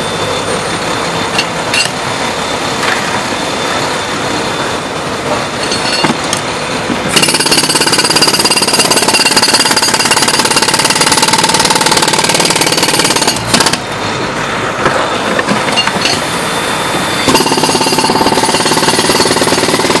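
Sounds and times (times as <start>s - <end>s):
jackhammer breaking concrete: 7.2s - 13.9s, 17.3s - 20.0s.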